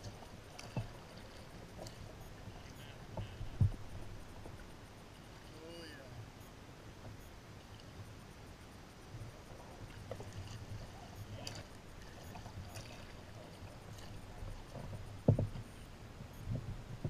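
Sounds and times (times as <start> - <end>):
paddle dipping into water: 0.0 - 5.9, 9.1 - 17.0
water moving along hull: 0.0 - 17.0
small knocks: 14.7 - 15.7.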